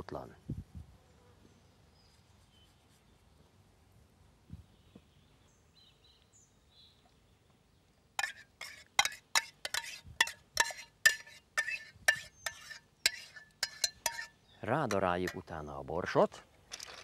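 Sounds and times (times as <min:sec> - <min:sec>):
salt clinking from ceramic box: 0:08.2 - 0:14.3.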